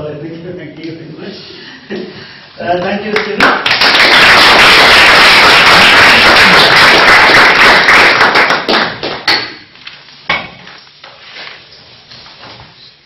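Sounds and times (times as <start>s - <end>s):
audience applauding: 3.2s - 9.4s.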